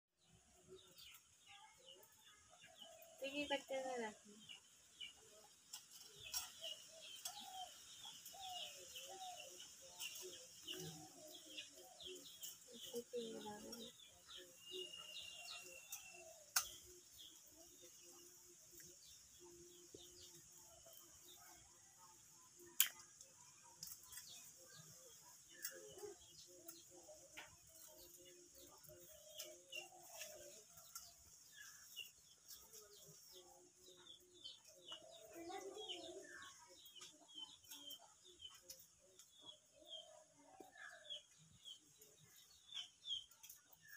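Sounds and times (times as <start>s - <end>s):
birds chirping: 0.2s - 43.9s
faint sharp clicks: 16.0s - 16.9s, 22.8s - 24.4s.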